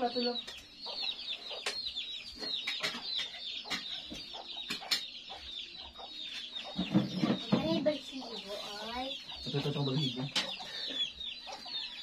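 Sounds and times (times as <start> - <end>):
chickens cheeping: 0.0 - 12.0.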